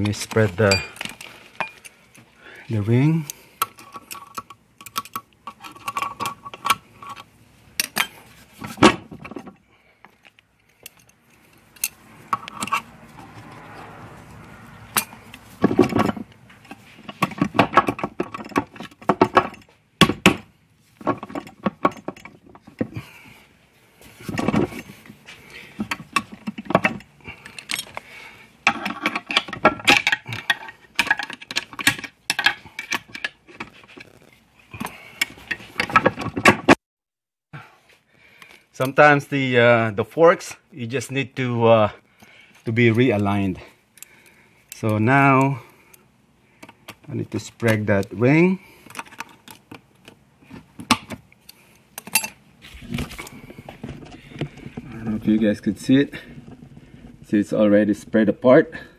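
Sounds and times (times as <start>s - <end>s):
tools clinking on metal case: 28.6s - 36.8s, 50.8s - 52.4s.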